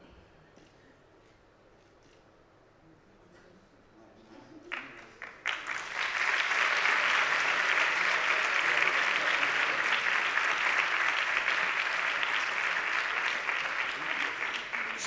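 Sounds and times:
audience applauding: 4.7s - 15.0s.

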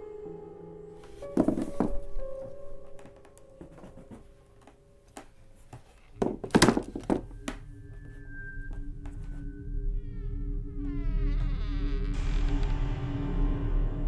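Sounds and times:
box thudding on floor: 1.2s - 4.2s, 6.2s - 7.6s
box knocking on tiled floor: 1.3s - 2.2s, 6.2s - 7.6s.

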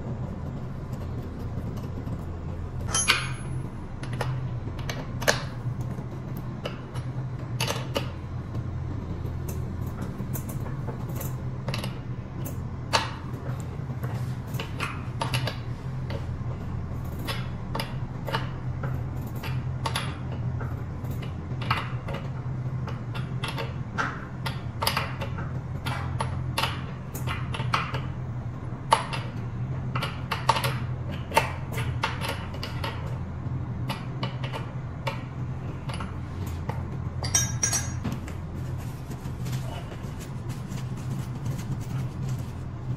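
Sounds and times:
steady low hum: 0.0s - 42.9s
metal parts clicking and clinking: 2.8s - 4.3s, 37.2s - 38.3s.

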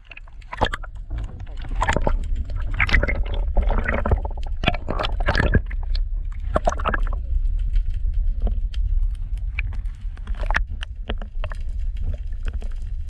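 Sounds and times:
water sloshing: 0.0s - 7.2s
low rumble: 0.0s - 13.0s.

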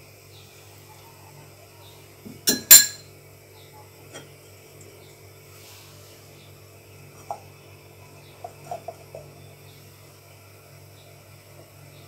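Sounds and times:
low electrical hum: 0.0s - 12.0s
kitchenware clinking: 2.4s - 3.1s.

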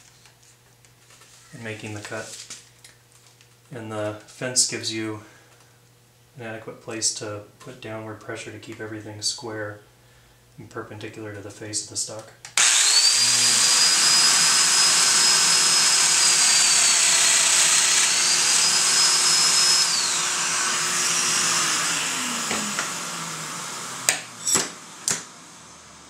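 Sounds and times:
dust extractor hissing: 12.6s - 26.0s
power tool motor whining: 12.6s - 26.0s.

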